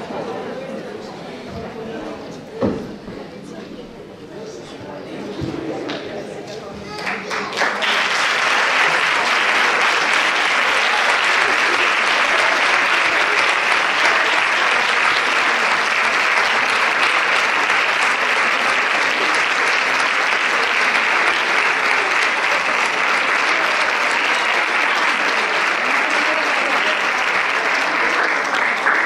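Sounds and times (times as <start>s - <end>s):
audience applauding: 6.9s - 29.0s.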